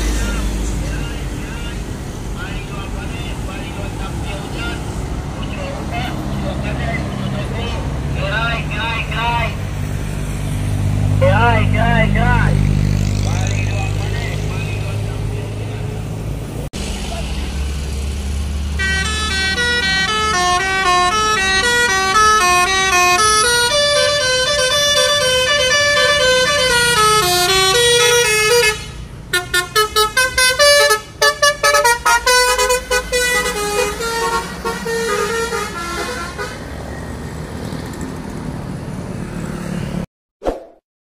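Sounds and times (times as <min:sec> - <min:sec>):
bus engine and road hum: 0:00.0 - 0:40.1
musical air horn playing tune: 0:18.8 - 0:36.6.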